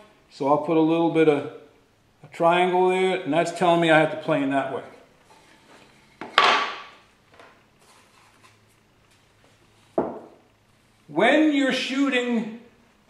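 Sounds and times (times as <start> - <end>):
wood-on-wood knock: 6.2 - 7.0, 10.0 - 10.4.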